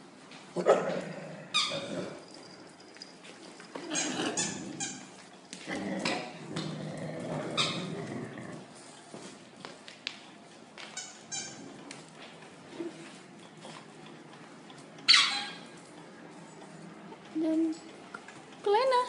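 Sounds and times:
puppies rough play noises: 0.4s - 9.3s
puppies squealing and yipping: 15.1s - 15.7s.

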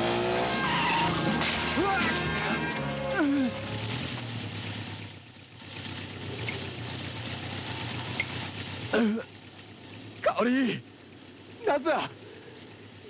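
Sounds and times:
man crying out: 1.8s - 3.6s
motorcycle engine idling: 1.8s - 13.0s.

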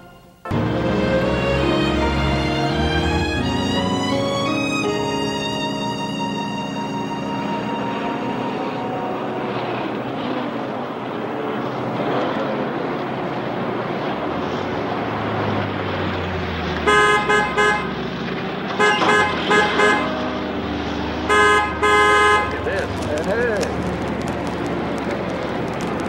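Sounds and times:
car horns honking: 0.0s - 10.6s, 16.8s - 23.8s
road traffic: 0.0s - 26.0s.

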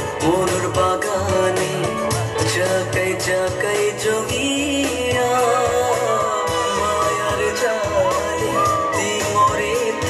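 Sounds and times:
man singing into microphone: 0.0s - 10.0s
band playing: 5.2s - 10.0s.

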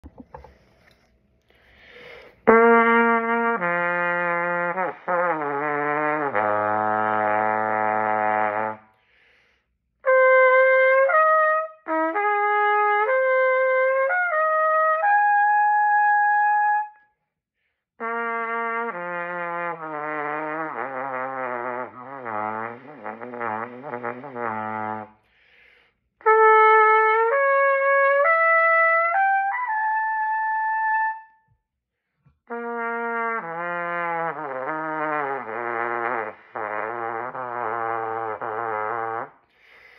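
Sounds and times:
solo trumpet: 2.4s - 9.1s, 10.0s - 17.2s, 18.0s - 25.4s, 26.2s - 31.6s, 32.4s - 39.5s.

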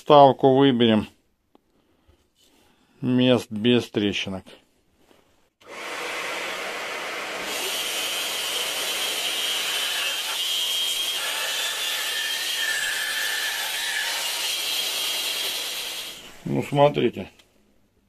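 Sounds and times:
bandsaw cutting wood: 5.6s - 16.3s.

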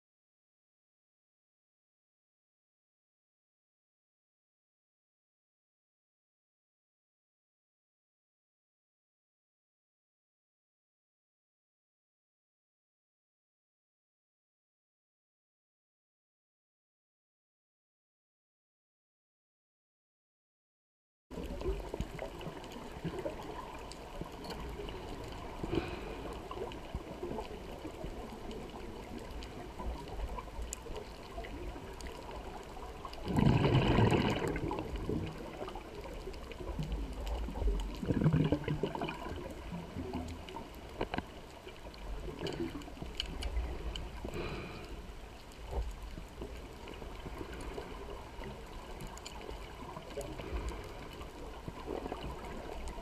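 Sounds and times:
low steady underwater rumble: 21.3s - 53.0s
diver's exhaled bubbles rushing: 33.2s - 35.8s, 36.8s - 40.2s.

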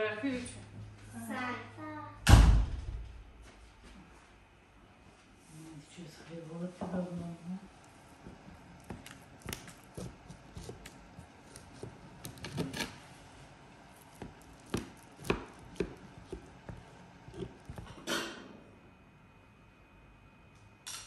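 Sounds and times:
knife cutting through pie: 8.8s - 13.1s, 14.0s - 18.1s.

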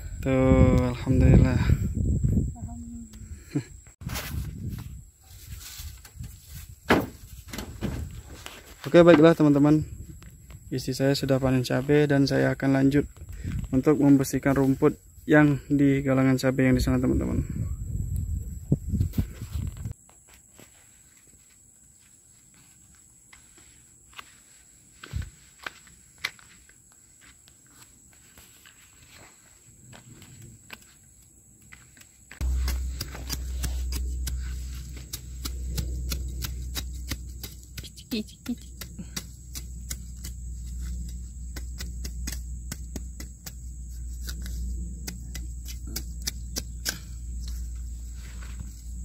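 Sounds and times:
soft thump: 6.9s - 8.1s
steady high-pitched whine: 32.3s - 49.0s
steady low hum: 32.3s - 49.0s
weeding blade chopping soil: 32.3s - 49.0s.

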